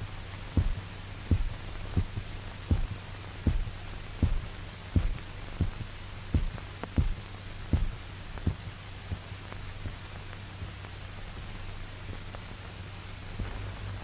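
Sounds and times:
heartbeat thumps: 0.0 - 10.0, 13.4 - 14.0
steady low hum: 0.0 - 14.0.

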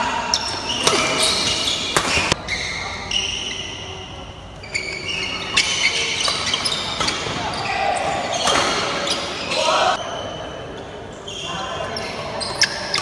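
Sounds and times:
rackets striking shuttlecock: 0.3 - 2.4
shoes squeaking on court floor: 0.3 - 13.0.

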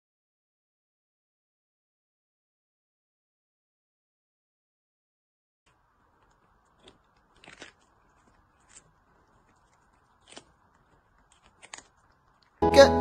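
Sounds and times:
kitten crunching cucumber: 5.7 - 12.6.

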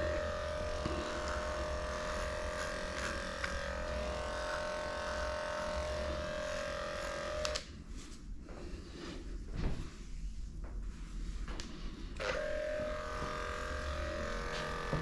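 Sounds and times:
electric clippers buzzing: 0.0 - 7.7, 12.2 - 15.0.

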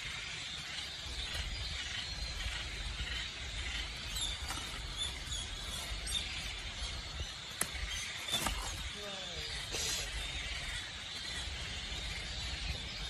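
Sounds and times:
high hiss: 8.9 - 10.5.

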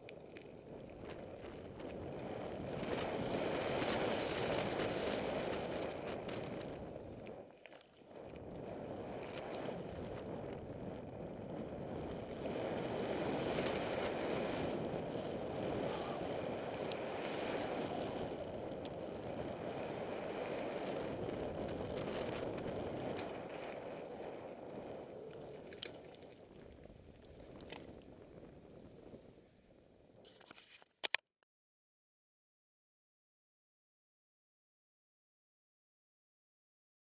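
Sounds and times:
bike tyres rolling over gravel: 0.0 - 29.5
wind on microphone: 0.0 - 30.4.

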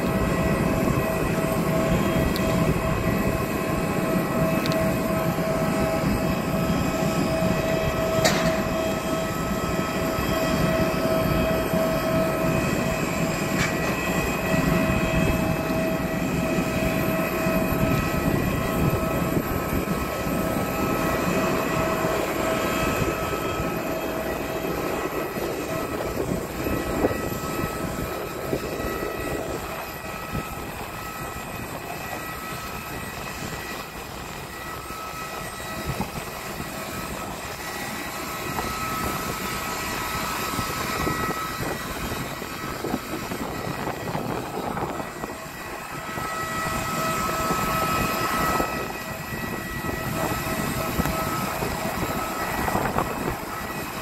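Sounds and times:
jet turbine rushing and whining: 0.0 - 54.0.

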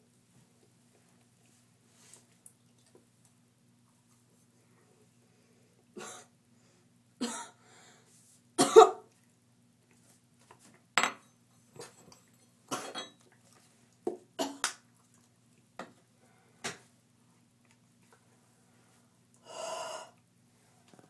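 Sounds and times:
person coughing: 8.6 - 9.1.

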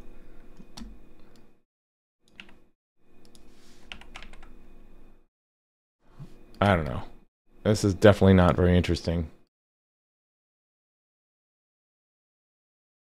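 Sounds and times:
faint steady hum: 2.4 - 5.2.

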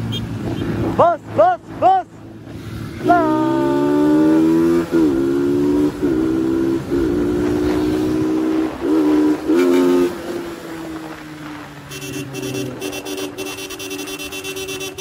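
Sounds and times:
vehicle horn blasts: 9.5 - 10.0, 11.9 - 15.0.

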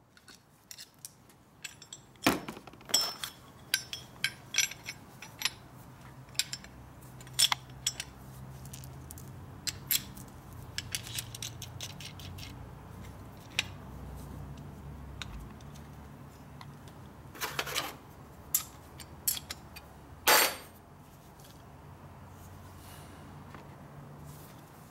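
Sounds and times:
metal parts clicking and clinking: 0.2 - 13.8, 17.4 - 20.7.

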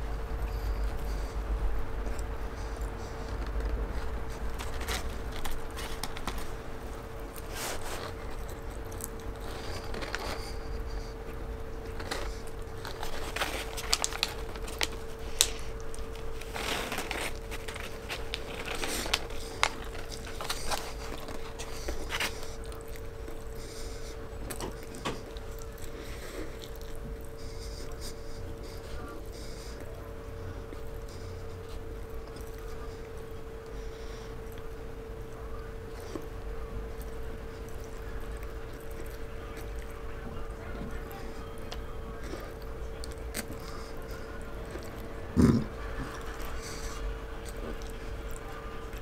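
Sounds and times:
person chewing: 0.0 - 49.0
steady hum: 0.0 - 49.0
paper wrapper crinkling: 2.0 - 29.8.

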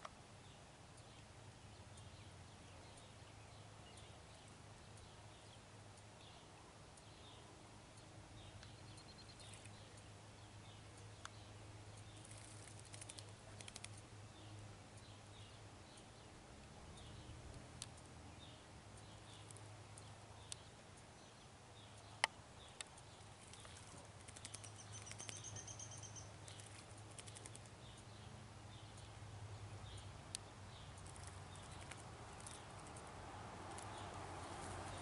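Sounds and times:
steady low hum: 0.0 - 35.0
high bird chirps: 21.8 - 28.1
high bird trill: 23.0 - 28.1.

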